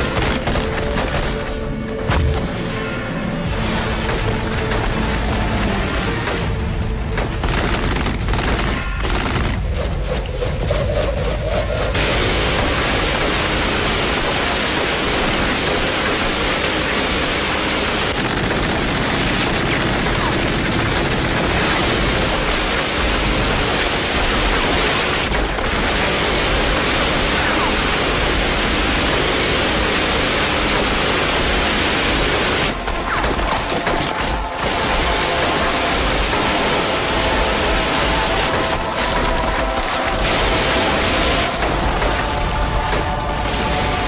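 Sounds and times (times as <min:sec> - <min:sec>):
background music: 0:00.0 - 0:44.0
dense gunfire: 0:07.2 - 0:09.9, 0:12.0 - 0:44.0.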